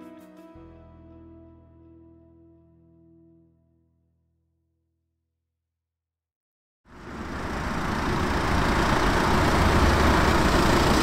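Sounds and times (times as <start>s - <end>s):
van engine humming: 6.9s - 11.0s.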